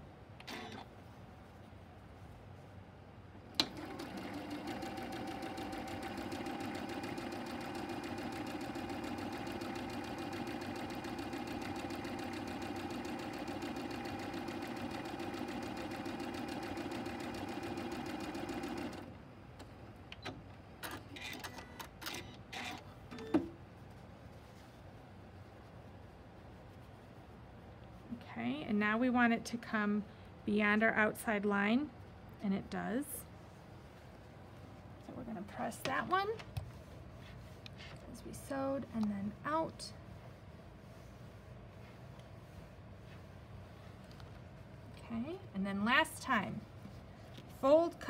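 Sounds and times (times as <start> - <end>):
sewing machine stitching: 3.6 - 19.1.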